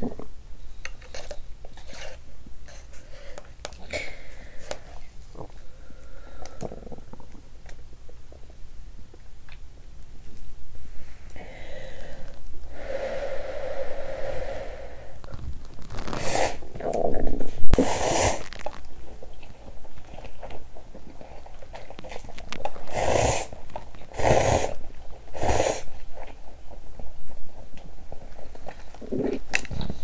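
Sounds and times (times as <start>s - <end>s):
slurping broth: 13.7s - 18.6s, 22.8s - 26.0s.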